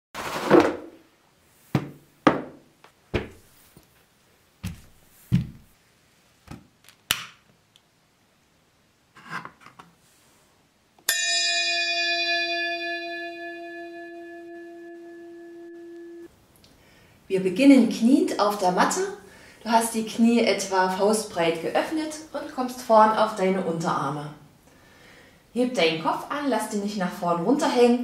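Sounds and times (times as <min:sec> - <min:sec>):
mat thumping on wooden floor: 0:01.7 - 0:03.6, 0:04.6 - 0:05.7
ringing metal bell tone: 0:11.1 - 0:16.3.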